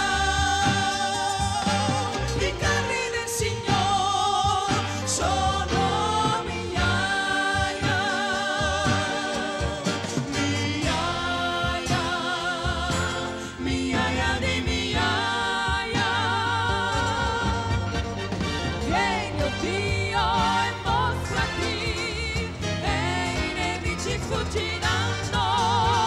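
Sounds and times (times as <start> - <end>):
woman singing gospel: 0.0 - 18.2, 18.9 - 26.0
band with bass and drums: 0.0 - 26.0.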